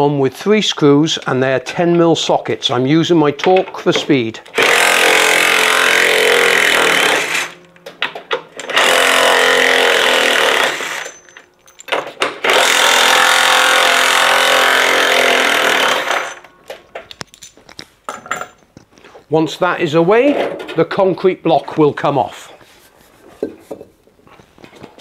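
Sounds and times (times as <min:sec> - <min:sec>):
cordless impact driver running: 0:04.6 - 0:07.6, 0:08.6 - 0:11.1, 0:12.4 - 0:16.4.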